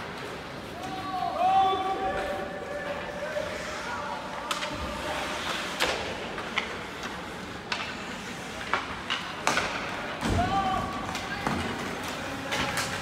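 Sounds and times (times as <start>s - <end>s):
skates hissing on ice: 3.2s - 9.1s
clacks of sticks and puck: 4.2s - 13.0s.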